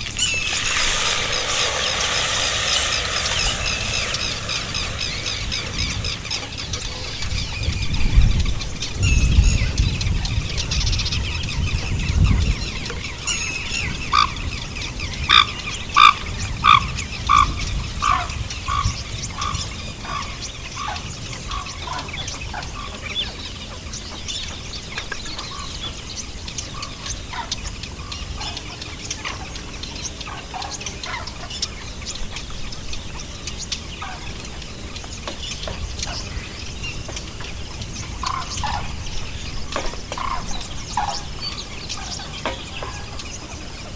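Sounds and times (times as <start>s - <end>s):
wooden spatula stirring in hot oil: 0.0s - 6.8s
bird calling: 0.0s - 10.2s, 33.2s - 43.9s.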